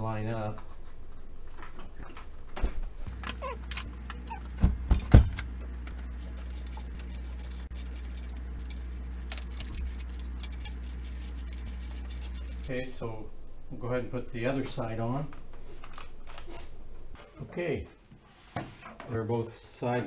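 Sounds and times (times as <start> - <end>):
steady low hum: 3.0 - 17.2.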